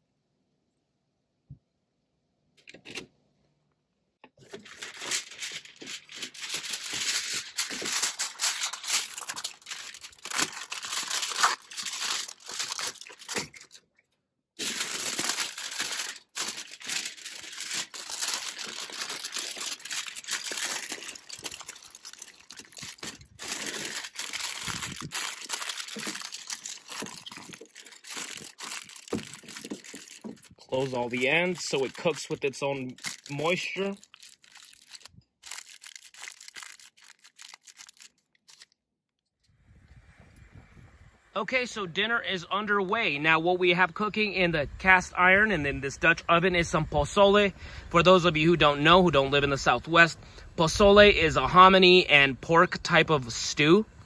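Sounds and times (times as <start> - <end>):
aluminum foil crinkling: 4.4 - 13.9, 14.6 - 38.8.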